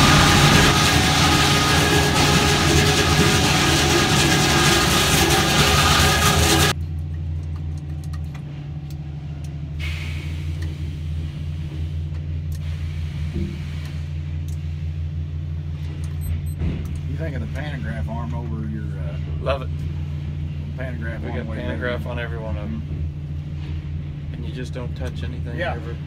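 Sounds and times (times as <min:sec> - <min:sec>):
loud heavy machinery tones: 0:00.0 - 0:06.8
muffled low machinery hum: 0:00.0 - 0:26.0.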